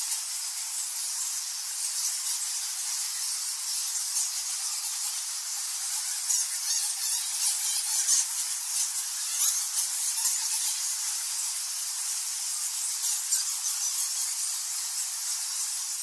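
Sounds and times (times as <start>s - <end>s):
hiss: 0.0s - 16.0s
bats squeaking: 0.1s - 16.0s.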